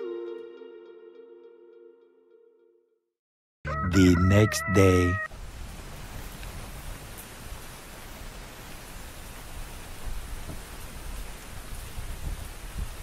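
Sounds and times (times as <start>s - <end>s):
rain falling on trees and grass: 5.3s - 13.0s
wind rumbling on microphone: 9.0s - 13.0s.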